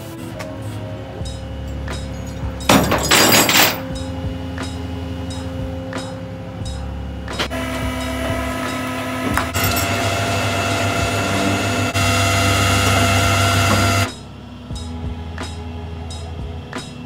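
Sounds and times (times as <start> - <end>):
tow truck engine and winch drone: 0.2 - 16.7.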